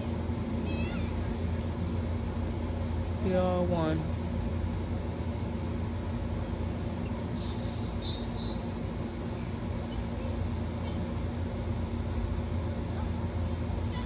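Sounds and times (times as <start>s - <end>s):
steady low hum: 0.0s - 14.0s
small bird chirping: 6.7s - 10.0s.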